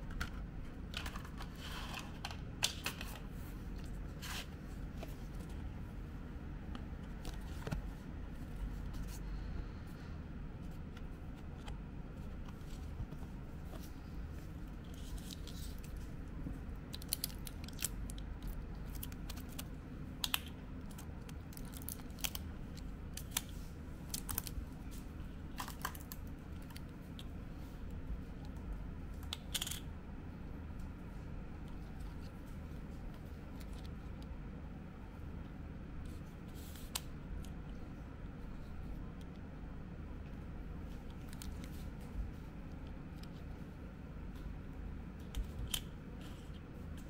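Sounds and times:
low room hum: 0.0 - 47.0.

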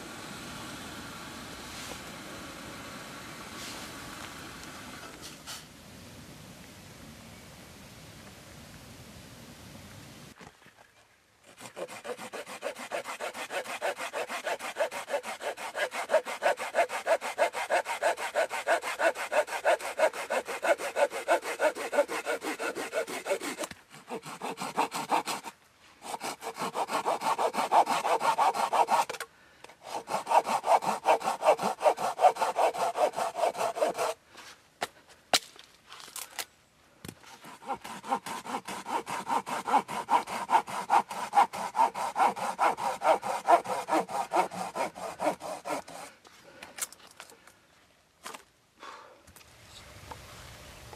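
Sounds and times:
hand saw cutting a branch: 11.4 - 34.2, 37.3 - 46.2.

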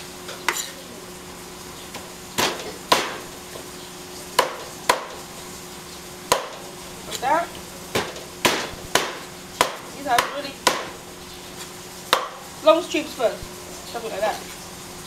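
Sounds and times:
cleaver chopping on wooden block: 2.4 - 3.2, 4.4 - 5.2, 6.3 - 6.6, 7.9 - 11.0, 12.1 - 12.4.

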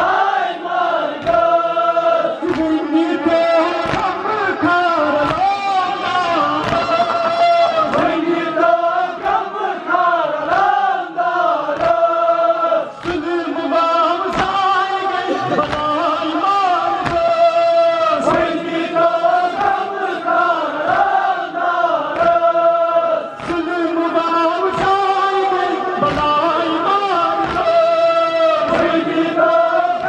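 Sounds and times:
rhythmic chest-beating thumps: 0.0 - 30.0
man chanting a lament: 1.3 - 10.3, 11.4 - 20.8, 22.3 - 30.0.

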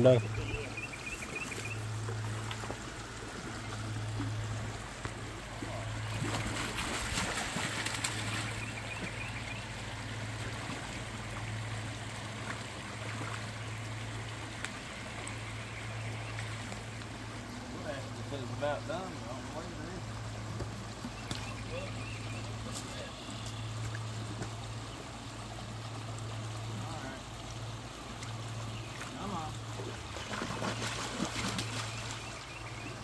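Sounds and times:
stream water trickling: 0.0 - 33.0.

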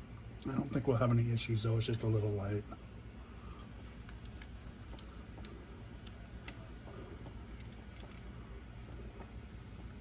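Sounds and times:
faint low hum: 0.0 - 10.0
light clicks and taps: 4.0 - 6.6.

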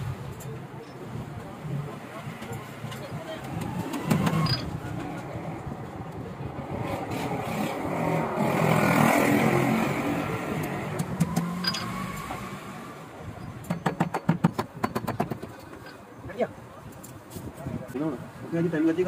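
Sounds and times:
motor vehicle passing: 3.2 - 13.3.

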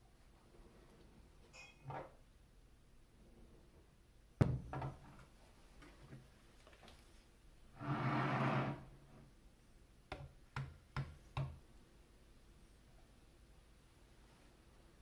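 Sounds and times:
camera scraping across wooden table: 7.8 - 8.9.

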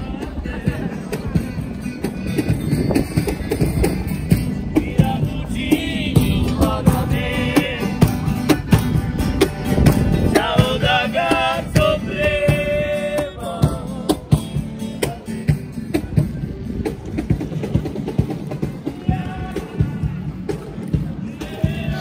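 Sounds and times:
cajon beat: 0.0 - 22.0
strummed acoustic guitars: 0.0 - 22.0
man singing: 4.6 - 8.2, 10.2 - 15.6, 19.0 - 20.3, 21.2 - 22.0
accordion: 5.6 - 13.3.

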